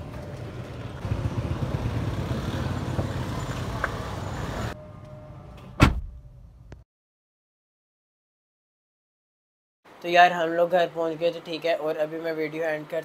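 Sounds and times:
car door shutting thump: 5.8 - 6.2.

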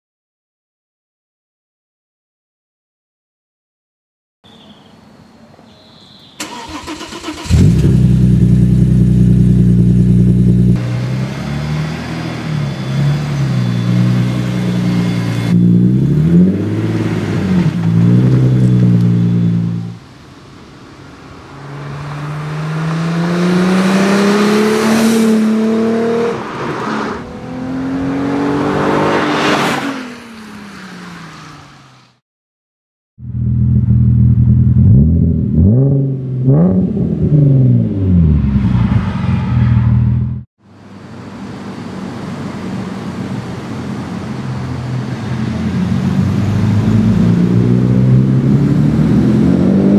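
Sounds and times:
car engine idling and revving: 6.4 - 20.0, 21.4 - 32.1, 33.2 - 49.9
car accelerating past: 21.5 - 31.9, 45.6 - 49.9.

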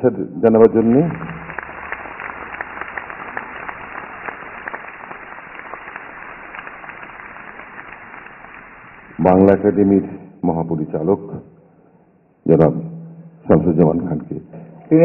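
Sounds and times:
audience applauding: 0.5 - 9.9.

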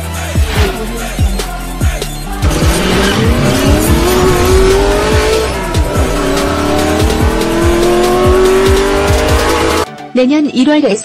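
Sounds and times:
electronic beat music: 0.0 - 9.9
car engine revving effect: 2.3 - 9.9.

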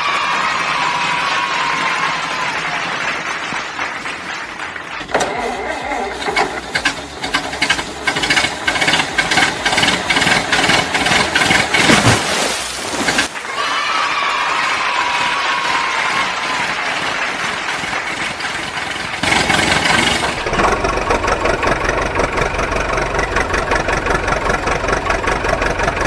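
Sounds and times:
engine running roughly with knocks: 5.0 - 13.4, 17.0 - 26.0.

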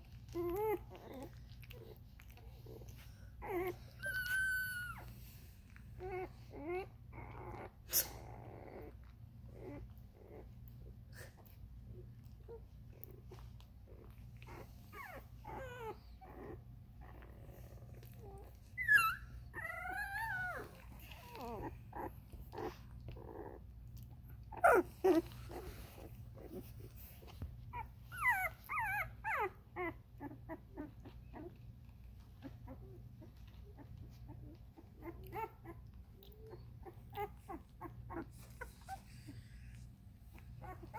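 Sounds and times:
puppies whimpering and squeaking: 0.0 - 40.9
puppies high cries: 3.4 - 5.1.

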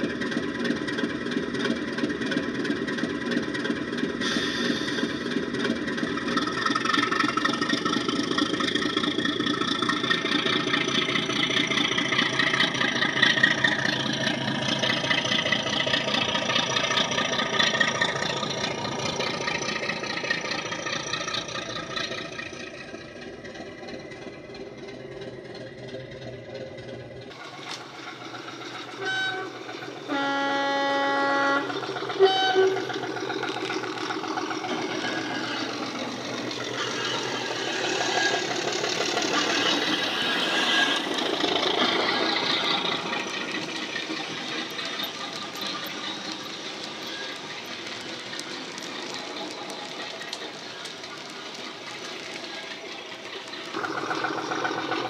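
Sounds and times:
model diesel engine through speaker: 0.0 - 55.0
locomotive horn toots: 28.9 - 33.8.

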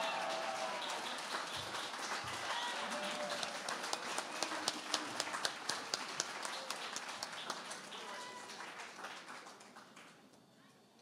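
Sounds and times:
scattered clapping: 0.0 - 10.4
low crowd chatter: 0.0 - 11.0.

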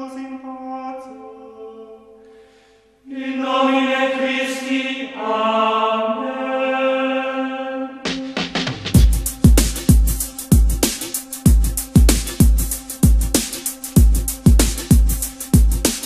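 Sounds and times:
sustained chant-like music tones: 0.0 - 9.5.

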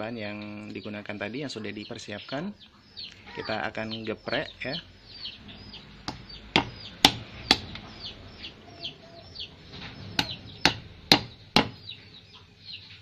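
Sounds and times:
pestle knocking on stone mortar: 6.1 - 7.8, 10.2 - 11.8.

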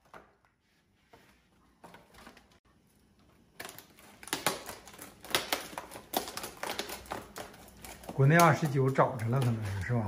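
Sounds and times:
plastic package clicking and crackling: 3.1 - 9.9.

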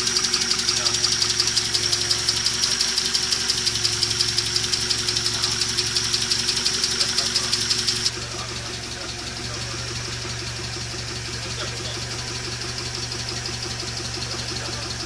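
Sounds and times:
car engine idling: 0.0 - 15.0
rapid even engine ticking: 0.0 - 15.0.

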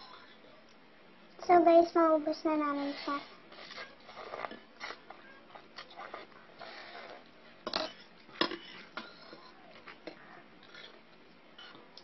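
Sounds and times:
slurping and chewing noodles: 2.9 - 7.3, 8.7 - 11.0.

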